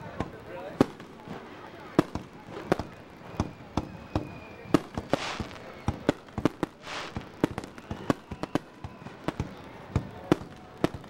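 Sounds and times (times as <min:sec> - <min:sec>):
fireworks bangs: 0:00.0 - 0:11.0
firework hiss: 0:04.6 - 0:09.6.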